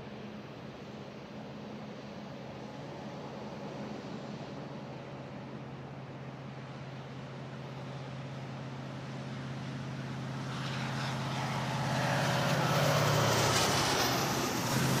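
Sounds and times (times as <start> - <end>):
vehicle passing by: 9.6 - 15.0.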